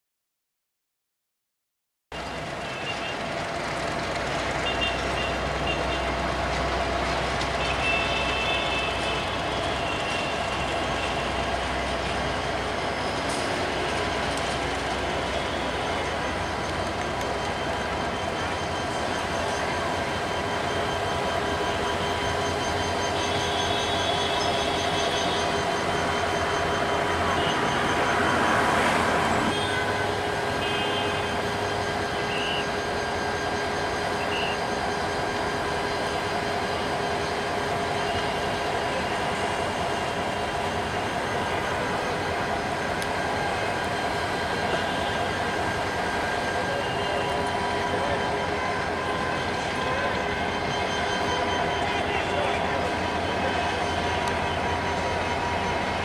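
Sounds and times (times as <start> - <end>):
train running noise: 2.1 - 56.0
high wheel squeal: 4.6 - 56.0.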